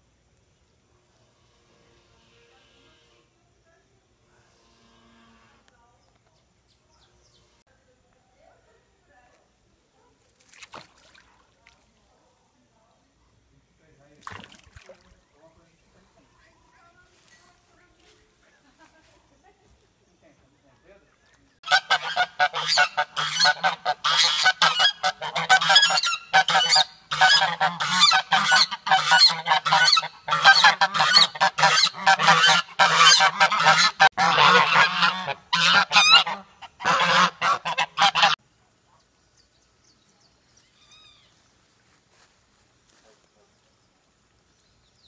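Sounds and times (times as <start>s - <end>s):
geese honking: 21.6s - 38.4s.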